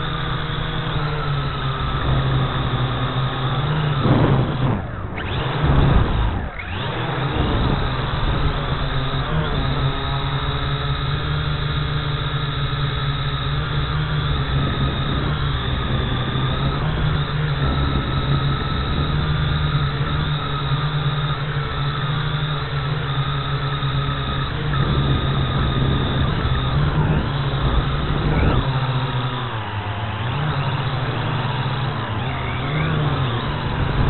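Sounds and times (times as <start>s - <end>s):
drone motors buzzing: 0.0s - 34.0s
wind noise rumble: 3.8s - 10.0s, 13.8s - 21.3s, 23.8s - 29.8s, 33.2s - 34.0s.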